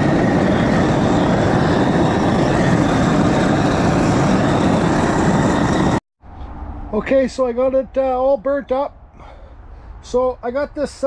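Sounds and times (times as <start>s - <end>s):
gas torch flame rushing: 0.0s - 6.0s.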